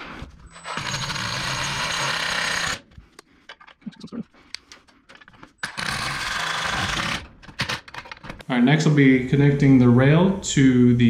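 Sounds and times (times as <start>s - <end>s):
impact driver running: 0.6s - 2.9s, 5.6s - 7.3s.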